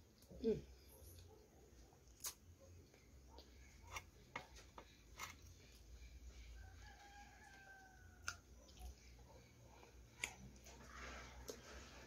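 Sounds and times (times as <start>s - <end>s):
faint rooster crowing: 6.3s - 9.8s.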